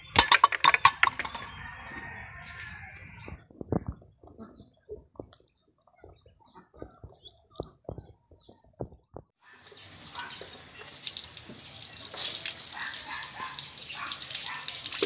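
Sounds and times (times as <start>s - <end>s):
hose water filling plastic jug: 9.6s - 15.0s.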